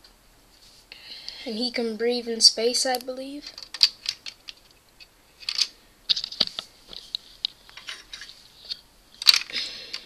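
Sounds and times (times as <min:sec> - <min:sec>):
plastic bricks clicking: 0:03.4 - 0:04.8, 0:05.4 - 0:06.6, 0:07.7 - 0:10.0
plastic pieces rustling scrapes: 0:05.4 - 0:10.0.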